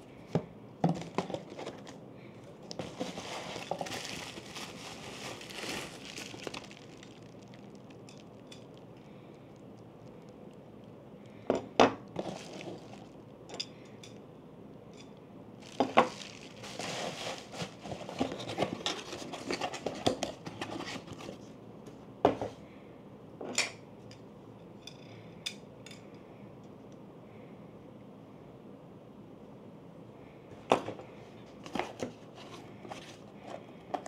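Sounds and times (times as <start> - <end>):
packaging rustling: 0.9 - 8.9, 12.2 - 13.2, 15.6 - 21.4.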